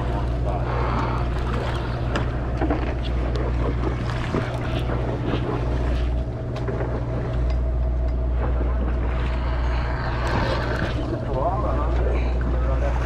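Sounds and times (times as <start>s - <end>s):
boat engine droning: 0.0s - 13.0s
sea noise: 0.0s - 13.0s
wind: 0.0s - 13.0s.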